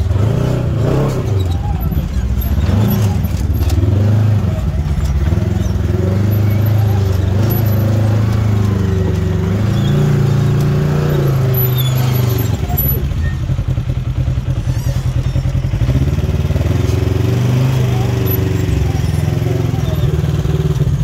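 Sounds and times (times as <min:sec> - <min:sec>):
utility vehicle engine running: 0:00.0 - 0:21.0.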